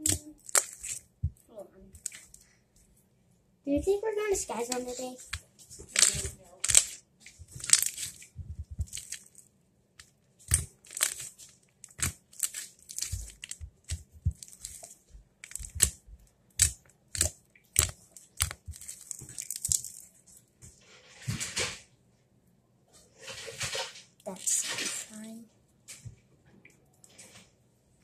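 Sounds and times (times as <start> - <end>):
slime clicking and popping: 0.0 - 1.0, 1.9 - 2.4, 4.7 - 9.4, 10.4 - 20.0.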